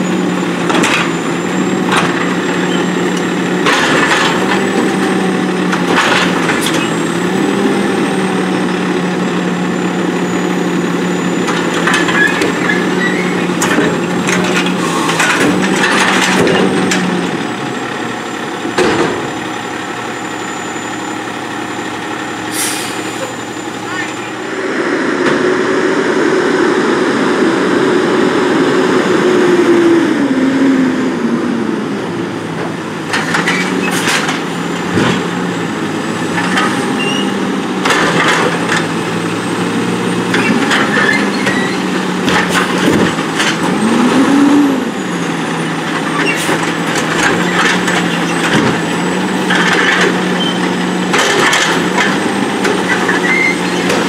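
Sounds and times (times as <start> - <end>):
garbage truck engine and hydraulics: 0.0 - 54.0
cart banging and trash falling: 40.3 - 43.8, 46.0 - 54.0.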